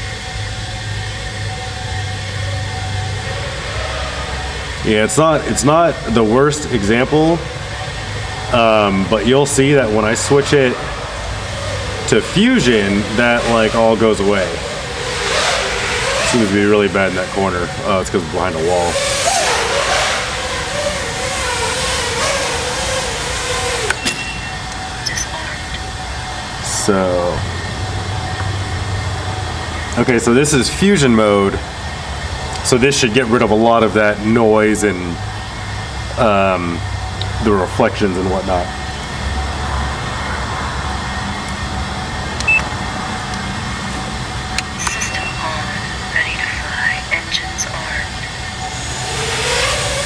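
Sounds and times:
quadcopter motors whining: 0.0s - 50.0s
steady background hum: 0.0s - 50.0s
short high beep: 24.0s - 25.6s, 44.8s - 45.9s.

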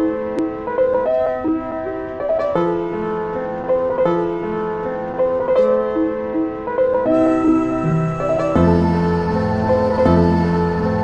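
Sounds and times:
slow background music: 6.6s - 11.0s.

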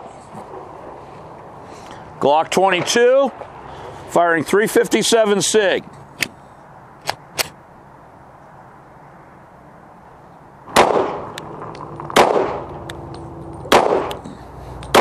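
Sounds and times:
pistol shots with echo: 10.7s - 12.7s, 13.7s - 14.2s.

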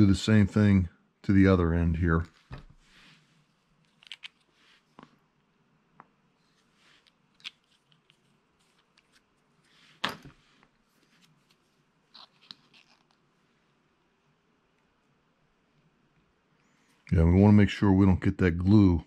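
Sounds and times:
soft handling clicks and rustles: 2.2s - 13.4s.

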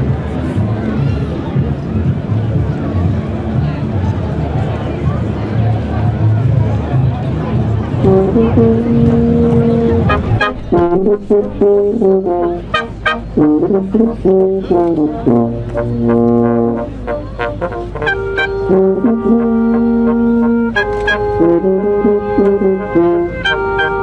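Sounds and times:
brass quintet playing: 8.0s - 24.0s.

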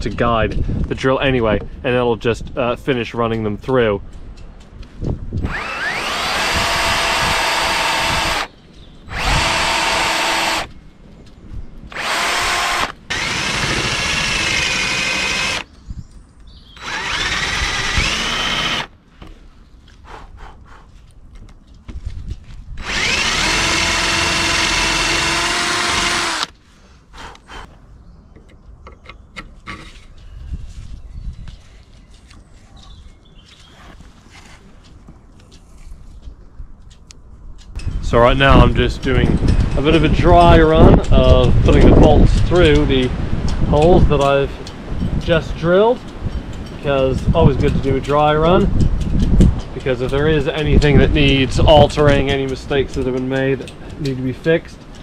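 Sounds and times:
cordless drill boring wood: 5.4s - 8.5s, 9.1s - 10.7s, 11.9s - 15.7s, 16.8s - 18.9s, 22.8s - 26.6s.

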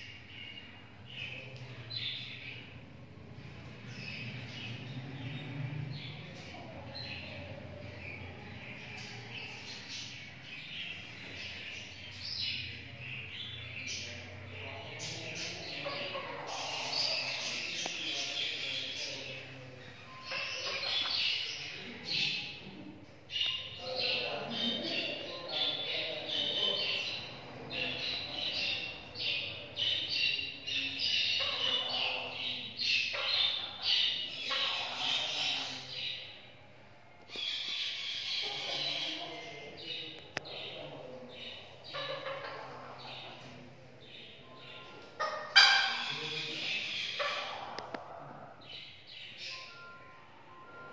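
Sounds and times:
birds chirping: 0.0s - 50.9s
high-pitched bird chirps: 48.9s - 50.9s.

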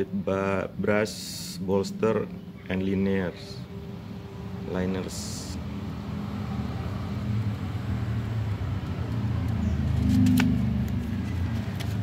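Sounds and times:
paper crackling: 9.9s - 12.0s.

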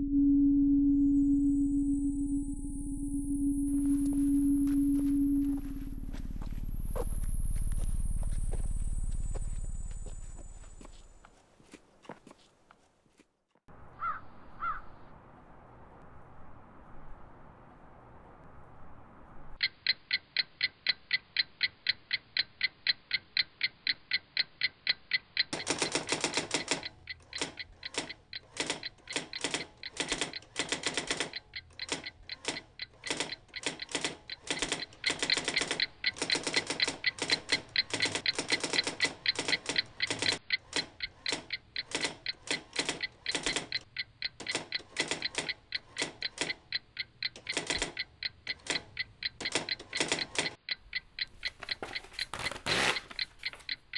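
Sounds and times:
clock ticking: 19.6s - 53.9s.

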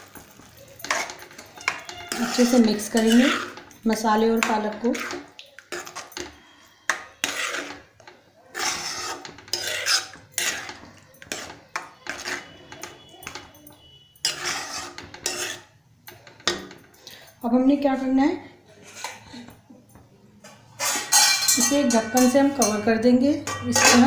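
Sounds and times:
spoon clinking on pan: 0.0s - 7.8s, 8.6s - 17.3s, 20.8s - 24.0s
spoon scraping thick paste in pan: 0.1s - 16.6s, 18.7s - 19.4s, 23.5s - 24.0s.

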